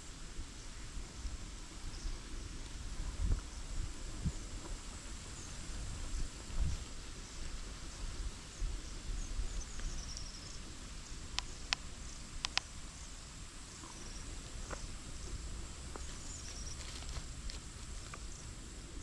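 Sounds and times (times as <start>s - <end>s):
faint high chirps: 9.1s - 13.2s
sharp clicks: 11.4s - 12.7s.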